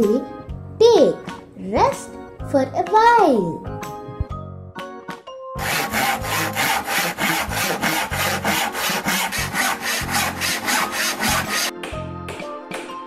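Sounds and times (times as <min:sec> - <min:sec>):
hand saw cutting wood: 0:05.6 - 0:11.7.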